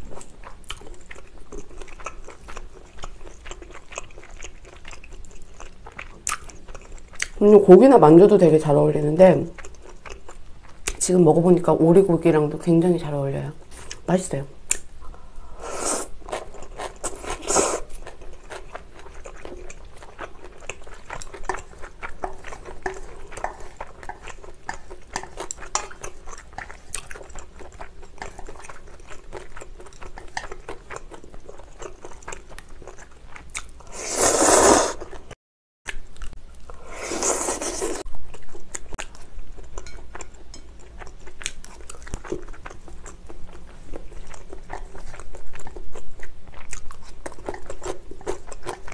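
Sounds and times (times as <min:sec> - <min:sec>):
chewing and mouth clicks: 0:00.0 - 0:07.4, 0:16.3 - 0:33.9, 0:35.9 - 0:36.8, 0:37.8 - 0:48.9
slurping noodles: 0:33.8 - 0:35.1, 0:36.9 - 0:38.1.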